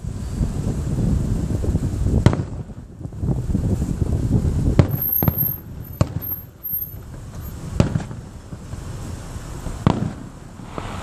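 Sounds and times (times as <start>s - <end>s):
steady low rumble: 0.0s - 11.0s
fireworks bangs: 2.2s - 2.9s, 4.7s - 11.0s.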